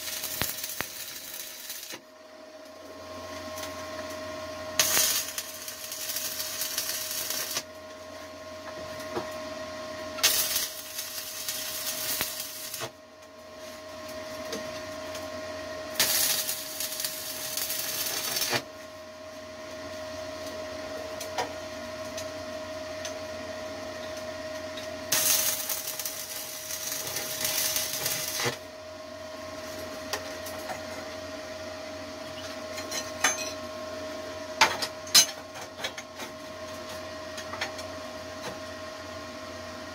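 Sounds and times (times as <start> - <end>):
welding arc crackle: 0.0 - 2.0, 4.8 - 7.7, 10.2 - 13.0, 15.9 - 18.7, 25.1 - 28.6.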